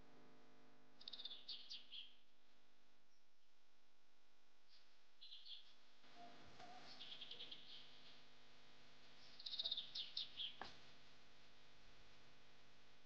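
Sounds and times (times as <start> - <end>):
faint high bird chirps: 1.0 - 2.2, 5.2 - 7.9, 9.3 - 10.6.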